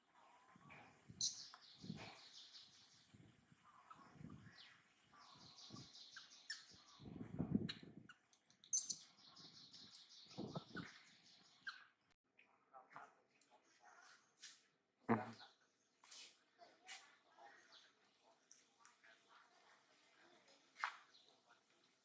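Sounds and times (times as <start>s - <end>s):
birds chirping trills: 1.2s - 12.0s.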